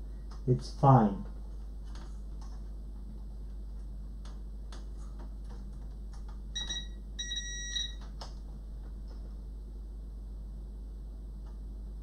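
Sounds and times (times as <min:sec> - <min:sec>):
steady low hum: 0:00.0 - 0:12.0
multimeter beeping: 0:06.6 - 0:08.0.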